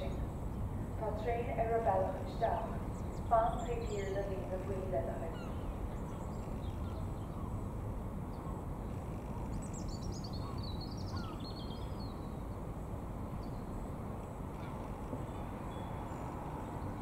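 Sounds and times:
low background rumble: 0.0 - 17.0
bird twittering: 9.8 - 12.0.

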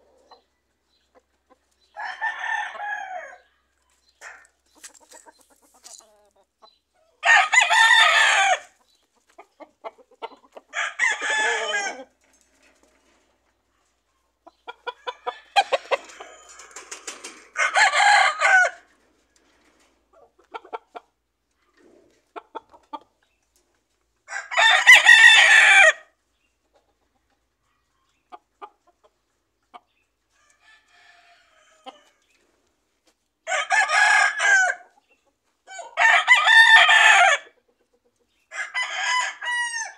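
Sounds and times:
roosters crowing: 1.9 - 3.6, 7.2 - 8.8, 10.7 - 12.2, 14.8 - 19.0, 24.3 - 26.1, 30.3 - 32.2, 33.4 - 34.9, 35.7 - 37.5, 38.5 - 39.9.

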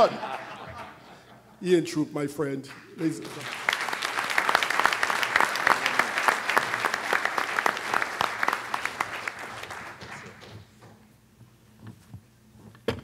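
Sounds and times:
audience applauding: 2.7 - 10.8.

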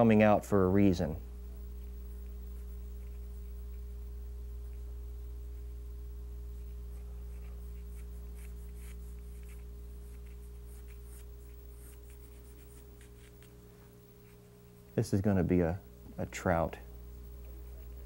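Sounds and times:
low electrical hum: 0.0 - 18.0
pencil scratching on paper: 6.9 - 13.5.

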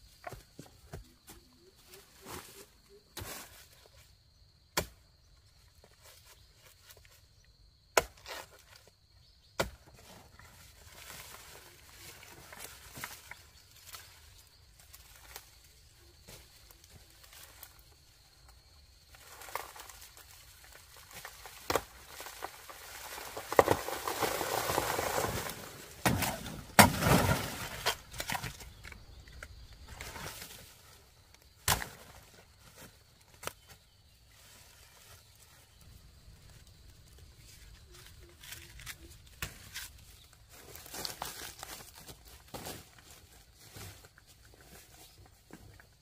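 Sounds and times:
dry leaves rustling: 19.1 - 28.5, 37.0 - 45.2.

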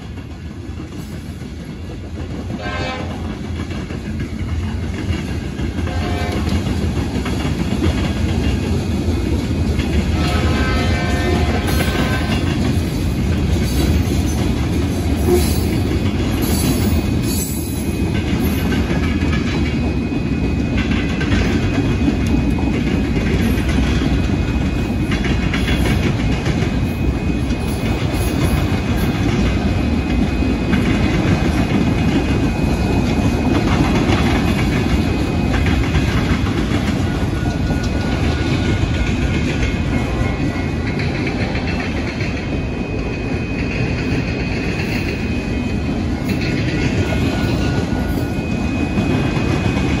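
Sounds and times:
freight train rumbling past: 0.0 - 50.0
wheels clacking over rail joints: 0.0 - 50.0.

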